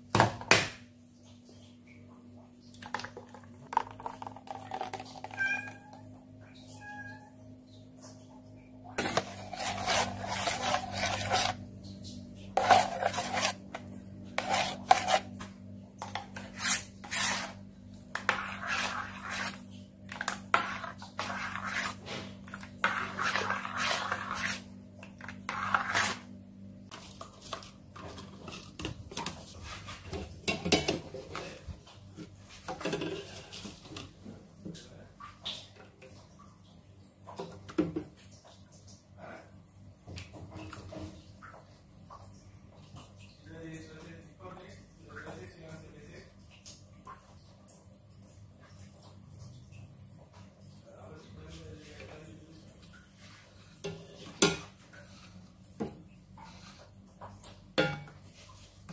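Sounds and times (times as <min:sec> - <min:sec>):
metal spoon scraping saucepan: 0:09.0 - 0:11.6, 0:12.6 - 0:15.4, 0:16.0 - 0:26.3.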